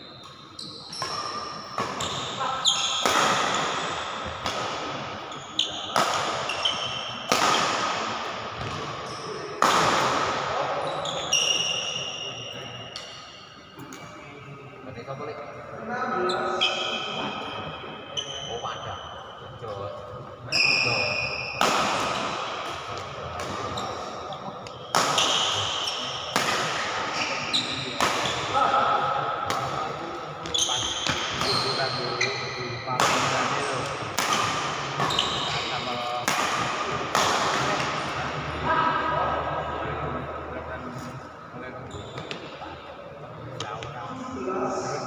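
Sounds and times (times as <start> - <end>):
shoes squeaking on court: 0.2 - 4.0, 5.3 - 7.3, 30.4 - 32.6, 35.0 - 35.9, 41.9 - 42.6
rackets hitting shuttlecock: 0.9 - 5.0, 5.6 - 11.8, 21.4 - 23.8, 24.6 - 28.6, 33.0 - 35.5, 36.1 - 38.2
racket striking shuttlecock: 36.2 - 37.9.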